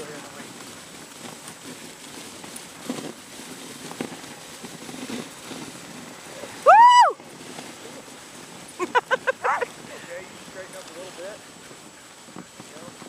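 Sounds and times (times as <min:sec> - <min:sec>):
sled runners hissing on snow: 0:00.0 - 0:13.0
loud rising and falling call: 0:06.6 - 0:07.2.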